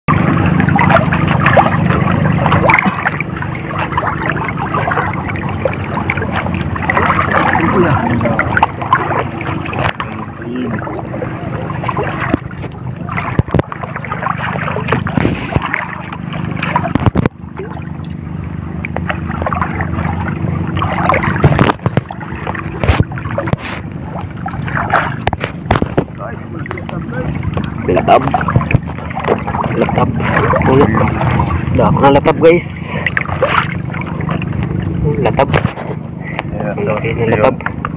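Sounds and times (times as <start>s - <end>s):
wind on microphone: 0.1s - 18.2s, 18.9s - 37.9s
low hum: 0.1s - 37.9s
seawater splashing: 0.1s - 37.9s
sharp knocks: 24.9s - 26.2s.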